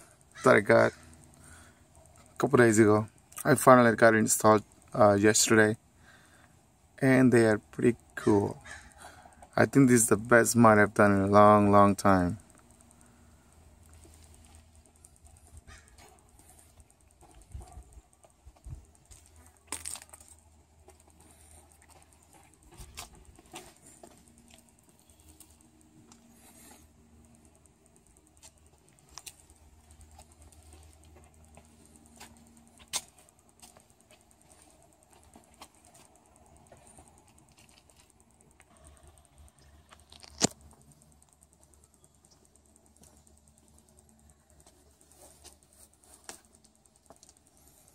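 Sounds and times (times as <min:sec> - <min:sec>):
small clicks and light rattles: 0:00.0 - 0:47.9
sharp click: 0:35.2 - 0:47.8.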